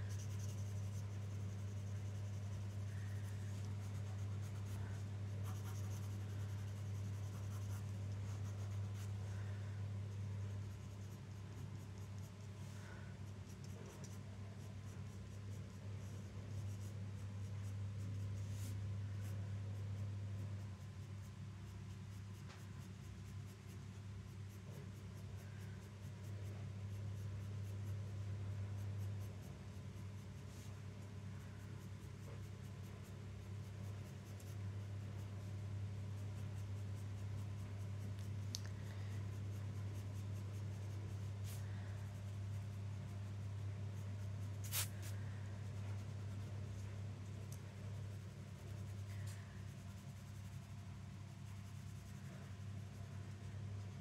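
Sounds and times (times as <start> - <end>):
pencil scratching on paper: 0.0 - 28.1, 39.2 - 54.0.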